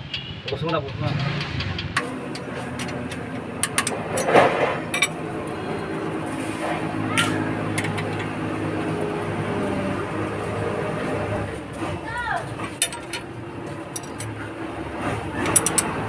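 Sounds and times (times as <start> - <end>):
low mechanical hum: 2.0 - 16.0
wrenches clinking on metal: 12.7 - 16.0
sharp metal clicks: 13.9 - 14.4, 15.3 - 16.0.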